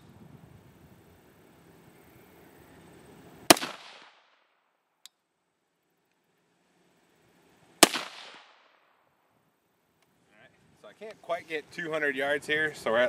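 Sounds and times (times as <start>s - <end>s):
rifle shots with echo: 3.5s - 4.4s, 7.8s - 9.0s.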